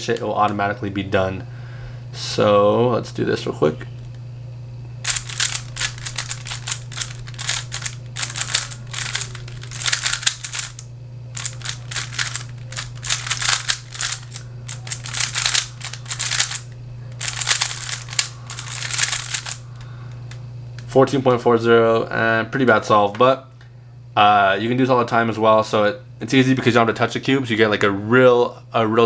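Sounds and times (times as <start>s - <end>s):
puzzle cube clicking as turned: 5.1s - 10.8s, 11.4s - 19.6s.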